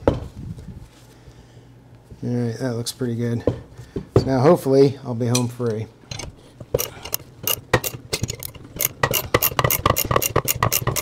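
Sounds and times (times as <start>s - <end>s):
ratchet wrench clicking: 6.1s - 11.0s.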